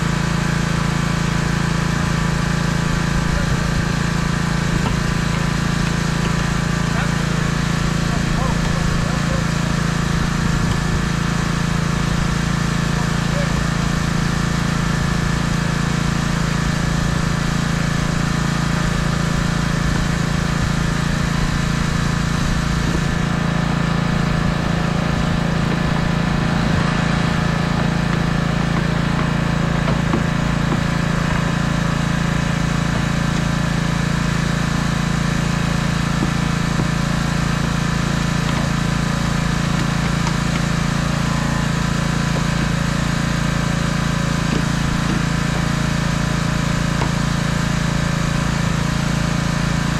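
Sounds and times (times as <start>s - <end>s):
engine running steadily: 0.0s - 49.9s.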